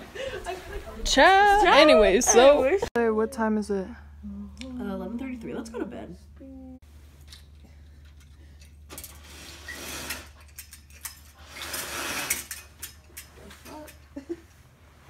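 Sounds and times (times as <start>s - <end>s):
steady low hum: 0.0s - 9.3s
roller blind whirring and clicking: 8.1s - 14.1s.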